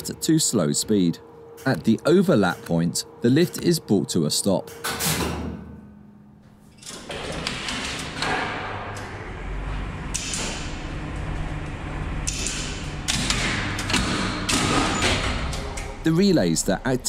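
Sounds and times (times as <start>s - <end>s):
lift machinery humming: 7.9s - 17.0s.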